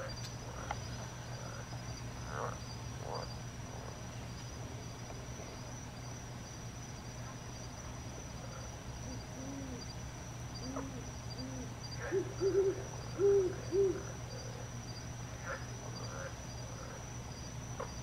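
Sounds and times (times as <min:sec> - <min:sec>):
high insect trill: 0:00.0 - 0:18.0
owl hooting: 0:09.0 - 0:09.9, 0:10.5 - 0:14.6.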